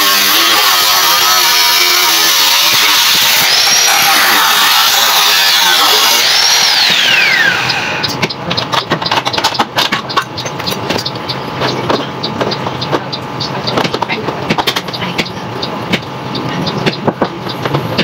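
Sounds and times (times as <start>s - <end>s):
electric drill boring through metal: 0.0s - 8.3s.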